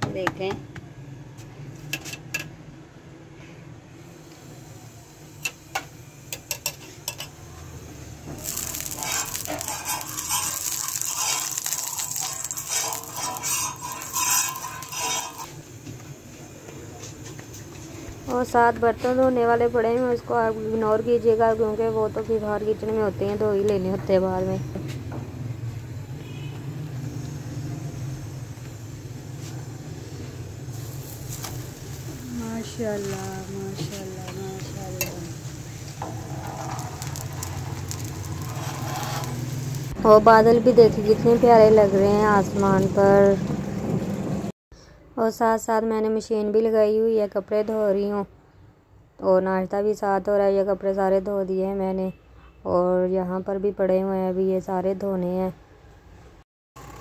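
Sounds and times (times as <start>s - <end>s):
sizzling on a hot griddle: 4.0s - 24.7s, 25.5s - 43.4s.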